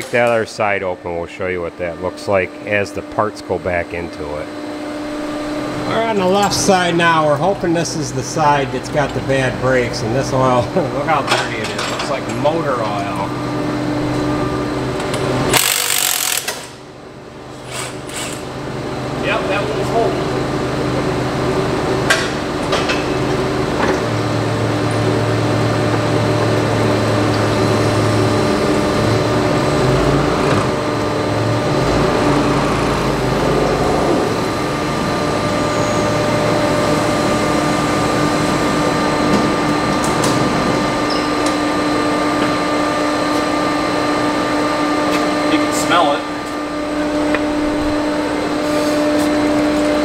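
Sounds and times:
forklift engine running: 12.2 - 45.6, 46.2 - 50.0.

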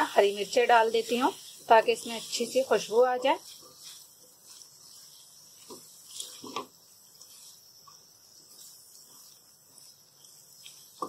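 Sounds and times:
spatula scraping metal pan: 0.0 - 7.7
faint high hiss: 0.0 - 11.0.

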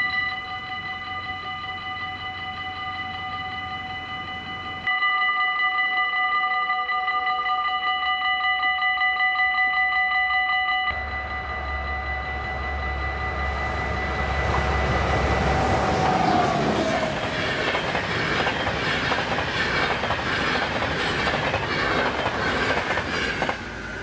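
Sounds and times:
level-crossing warning bells: 0.0 - 24.0
train rumbling: 10.9 - 24.0.

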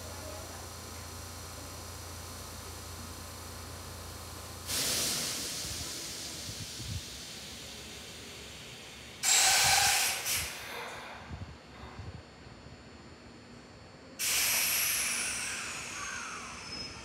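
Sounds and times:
compressed air hissing: 4.6 - 10.9, 14.2 - 17.0
faint whistle: 15.4 - 17.0.

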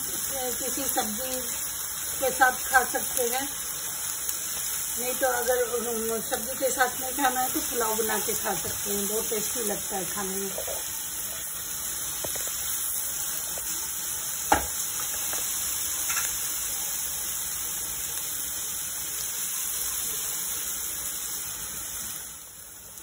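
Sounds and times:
vegetables sizzling in a pan: 0.0 - 23.0
spatula knocking on pan: 14.5 - 14.8.

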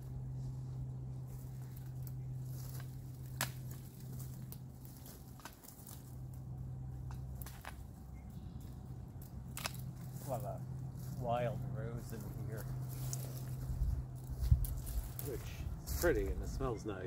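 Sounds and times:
steady low hum: 0.0 - 17.0
twigs snapping: 1.3 - 8.0, 8.6 - 10.4, 12.6 - 16.1.

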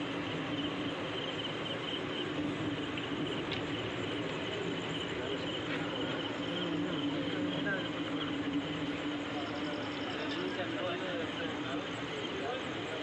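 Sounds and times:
crickets chirping: 0.0 - 13.0
low hum and rumble: 0.0 - 13.0.

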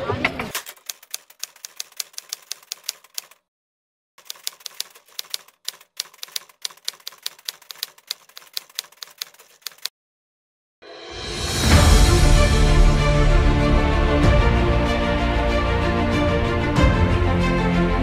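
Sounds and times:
typewriter key clacks: 0.5 - 3.4, 4.2 - 9.9.

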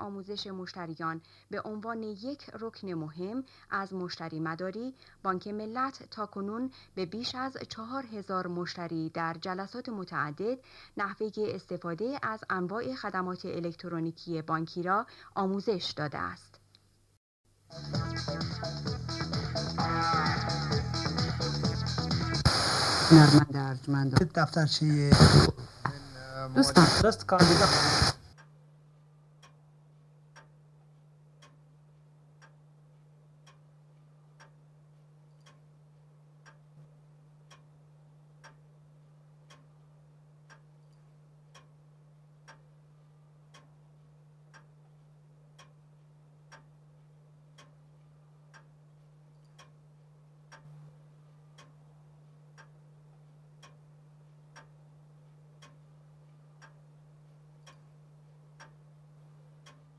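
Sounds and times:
steady low hum: 16.7 - 59.9
clock ticking faintly: 28.3 - 37.8, 38.4 - 38.8, 39.4 - 59.9.

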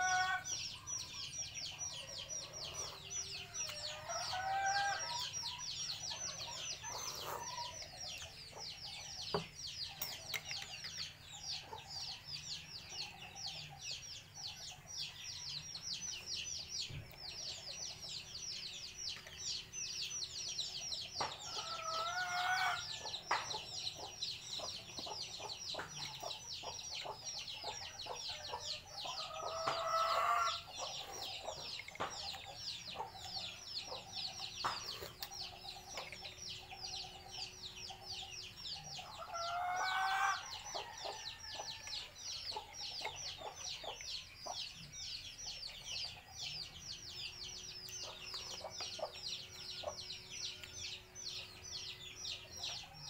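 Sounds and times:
rooster crowing: 3.8 - 5.4.

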